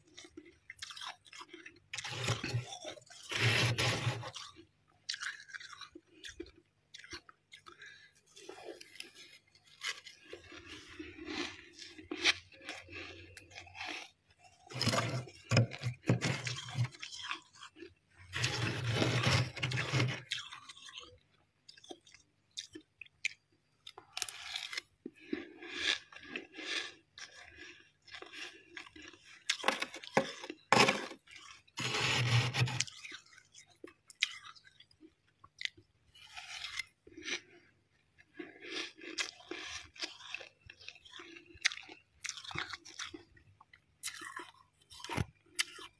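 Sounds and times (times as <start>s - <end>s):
frost crunching: 29.0s - 33.2s.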